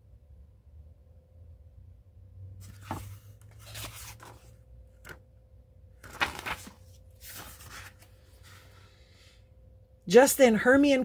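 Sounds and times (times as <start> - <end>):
book pages rustling: 2.6 - 5.2, 6.0 - 8.8.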